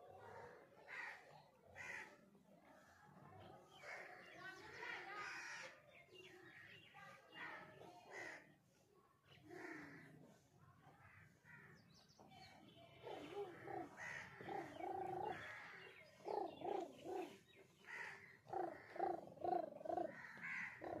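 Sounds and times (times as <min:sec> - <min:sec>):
crows cawing: 0:00.9 - 0:02.2, 0:13.1 - 0:16.5, 0:17.8 - 0:21.0.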